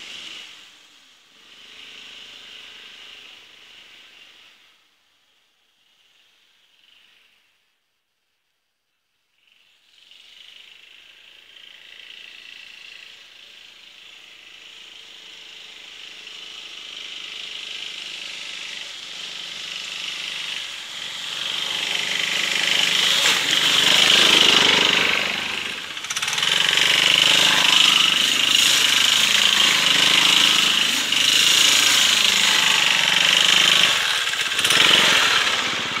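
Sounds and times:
scooter engine passing: 17.1s - 36.0s.

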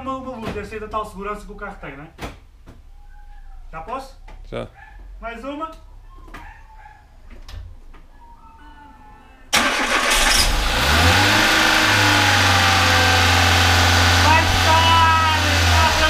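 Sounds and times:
car engine starting and idling: 9.5s - 16.0s.

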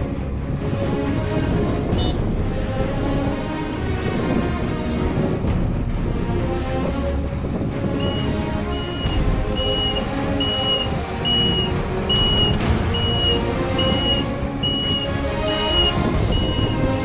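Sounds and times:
background music: 0.0s - 17.0s
vehicle reversing alarm beeping: 7.9s - 16.9s.

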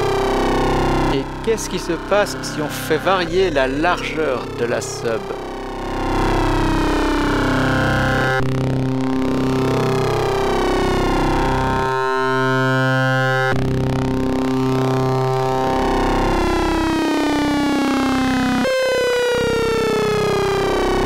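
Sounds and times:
modular synthesizer low note: 0.0s - 13.1s.

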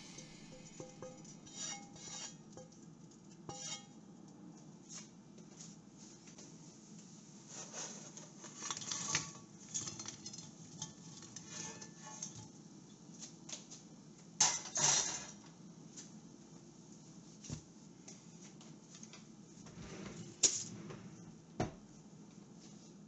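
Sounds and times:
metal pan clattering on burner: 0.0s - 2.8s, 14.4s - 15.4s.

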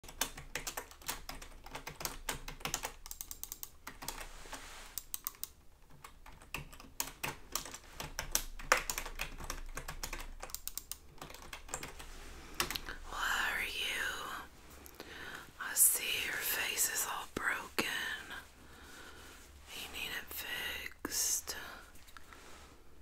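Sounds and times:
quick irregular tapping and clicking: 0.0s - 4.3s, 5.0s - 12.9s.

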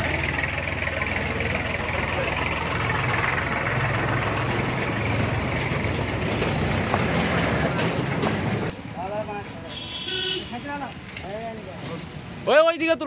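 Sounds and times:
vehicle engine idling: 0.0s - 8.7s.

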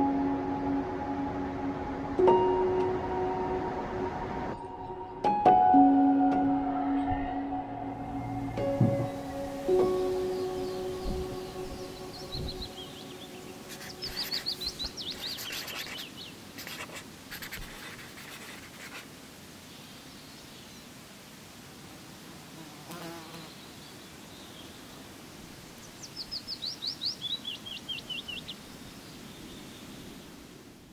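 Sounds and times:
faint steady hiss: 7.8s - 30.9s.

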